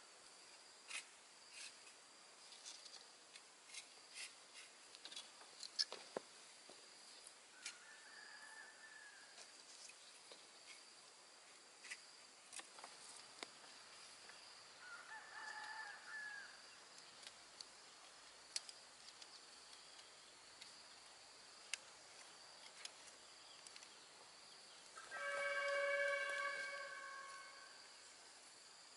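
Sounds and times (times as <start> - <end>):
insect whine: 0.0 - 28.9
rooster crowing faintly: 7.5 - 9.6, 14.8 - 16.7, 25.0 - 28.0
bamboo poles clicking: 11.8 - 13.6, 18.5 - 20.8, 21.6 - 24.0.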